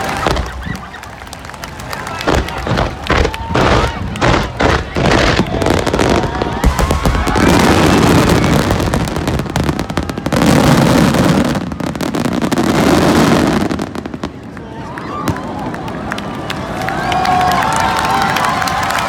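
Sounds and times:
fireworks bursting and crackling: 0.0s - 14.6s.

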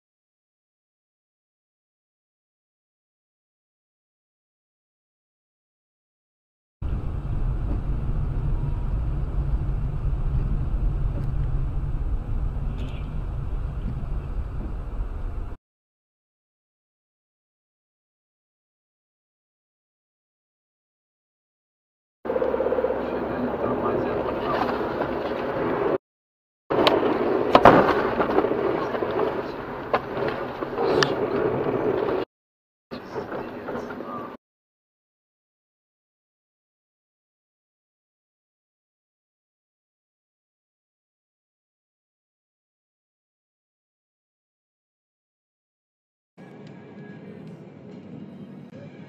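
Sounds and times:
car driving low rumble: 6.8s - 15.6s
car road noise: 6.8s - 15.6s, 22.3s - 26.0s, 26.7s - 32.3s.

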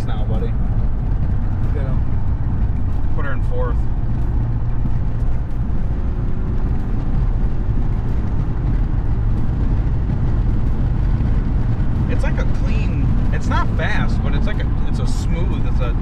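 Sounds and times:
diesel engine drone in cab: 0.0s - 16.0s
road noise: 0.0s - 16.0s.

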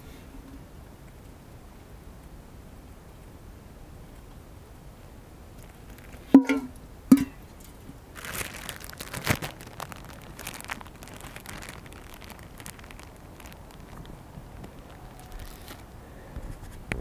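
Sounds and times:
plastic bag crinkling: 5.6s - 16.8s
metal cup clinking: 6.4s - 7.4s.

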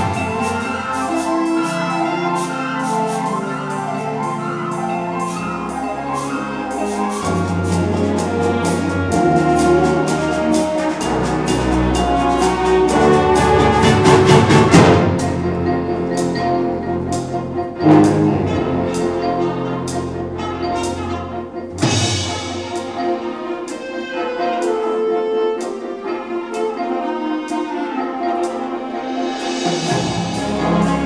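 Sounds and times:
percussion strikes: 0.0s - 25.0s, 25.6s - 31.0s
brass and woodwind chords: 0.0s - 31.0s.

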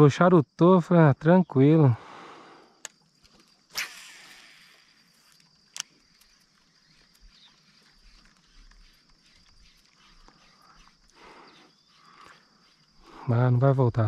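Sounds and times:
clicks: 5.4s - 6.5s.

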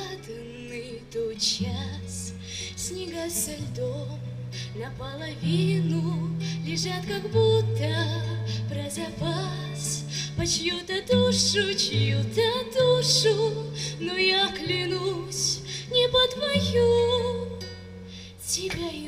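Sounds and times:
acoustic guitar: 0.0s - 19.0s.

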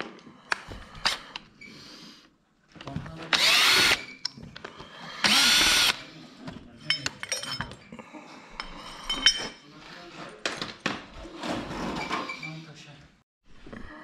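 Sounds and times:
cordless drill running: 3.3s - 4.0s, 5.2s - 6.0s.

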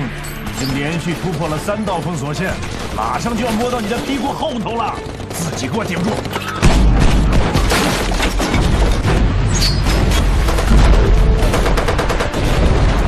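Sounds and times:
film music: 0.0s - 13.0s
rapid gunfire: 1.1s - 8.2s, 10.3s - 13.0s
heavy booming explosions: 6.6s - 13.0s.

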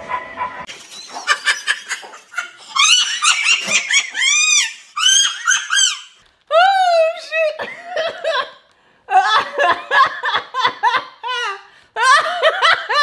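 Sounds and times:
woman laughing: 0.9s - 13.0s.

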